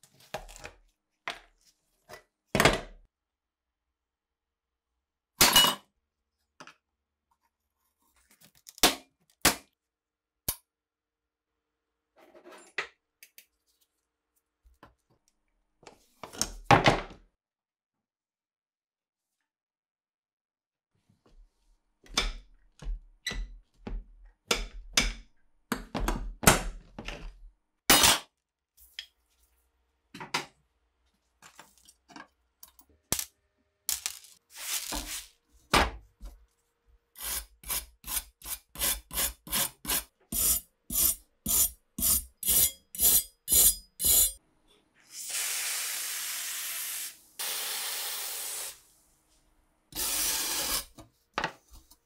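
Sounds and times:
wire brush scrubbing steel: 37.2 - 44.4.

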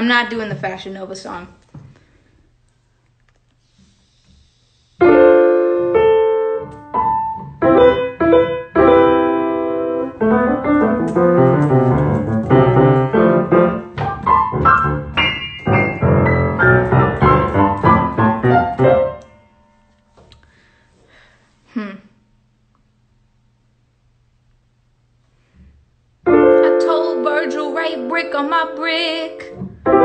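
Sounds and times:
piano playing: 5.0 - 20.1, 26.2 - 30.0.

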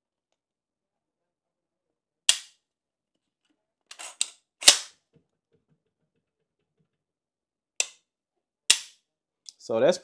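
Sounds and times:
hammer snapping forward: 8.7 - 9.0.

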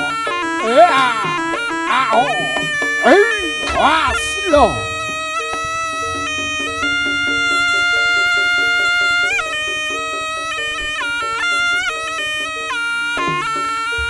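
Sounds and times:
shrill shawm melody: 0.0 - 14.0
steady drumming: 0.0 - 14.0
gong-chimes figure: 2.0 - 12.0.

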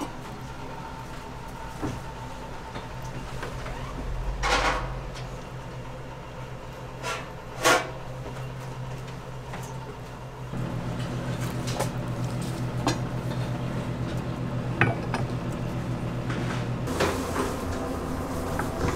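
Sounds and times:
steady low hum: 0.5 - 17.0
scrape: 16.3 - 18.9.

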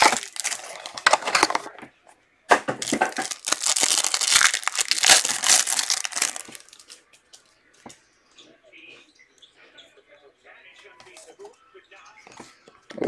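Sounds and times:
wrapper crinkling and tearing: 0.0 - 1.7, 2.8 - 7.0.

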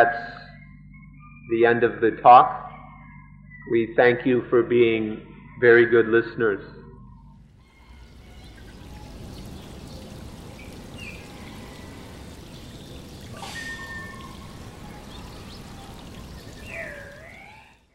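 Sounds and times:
low rushing hiss: 7.7 - 17.1
warbling curving call: 7.7 - 17.9.

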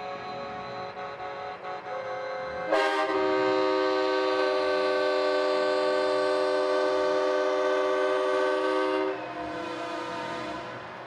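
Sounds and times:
truck air horn blast: 0.9 - 11.0.

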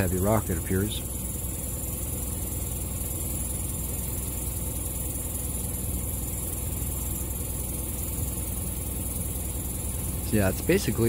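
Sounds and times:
vehicle engine idling: 0.0 - 11.0
high-pitched hiss: 7.8 - 11.0.

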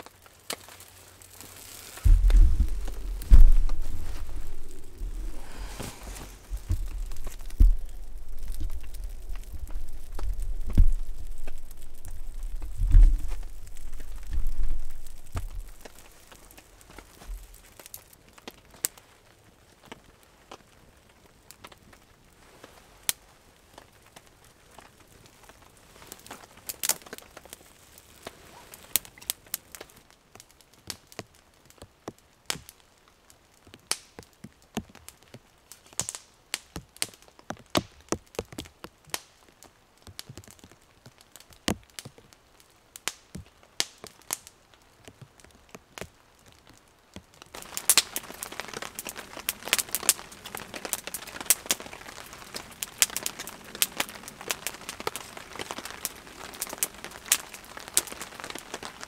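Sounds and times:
campfire crackling and popping: 0.0 - 59.0
knife shaving wood: 0.6 - 16.1.

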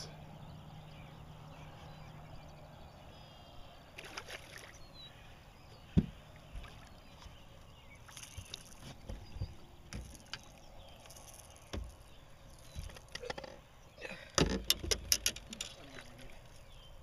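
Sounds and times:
water splashing: 3.9 - 4.9, 6.0 - 13.3
knocks on boat side: 5.9 - 6.2, 11.7 - 12.0.

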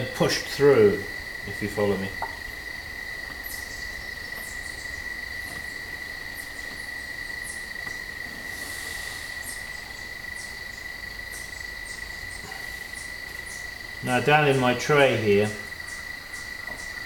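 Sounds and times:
high-pitched insect trilling: 0.0 - 17.0
faint high ticks: 2.2 - 2.4.

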